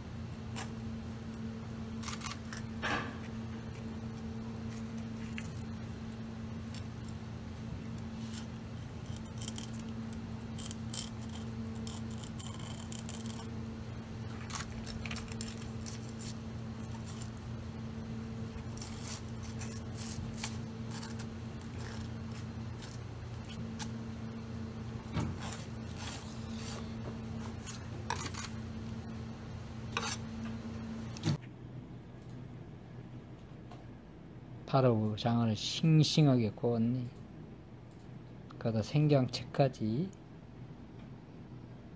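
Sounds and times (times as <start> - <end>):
kitchen hum: 0.0 - 34.1
knife scraping and cutting fish: 1.9 - 5.8, 8.0 - 13.6, 14.3 - 17.4, 18.5 - 24.0, 25.2 - 28.6, 29.9 - 30.3.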